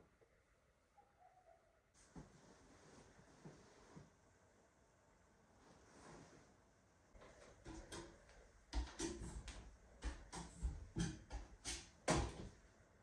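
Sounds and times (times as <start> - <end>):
footsteps climbing a ladder: 7.2 - 12.6.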